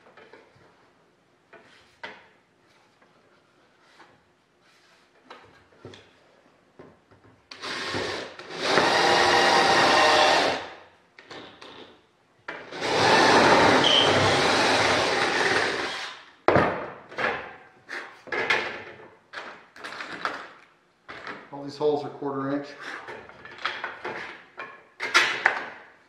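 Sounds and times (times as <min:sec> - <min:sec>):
cordless drill boring through wood: 0:07.5 - 0:10.8, 0:12.7 - 0:16.2.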